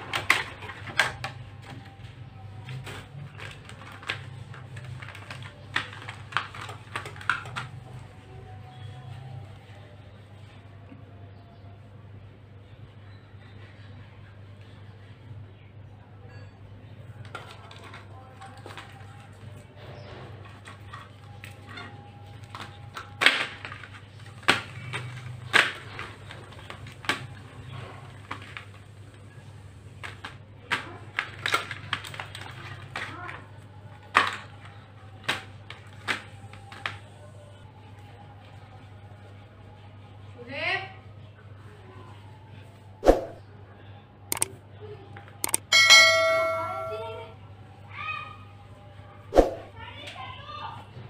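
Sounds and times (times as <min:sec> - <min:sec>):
plastic packaging clicking and crackling: 0:00.0 - 0:09.7, 0:17.0 - 0:19.7, 0:20.4 - 0:38.6.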